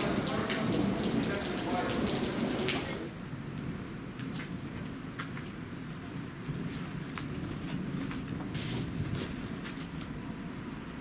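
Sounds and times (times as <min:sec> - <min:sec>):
sharp drips: 0:00.0 - 0:03.1
rain falling: 0:00.0 - 0:05.6.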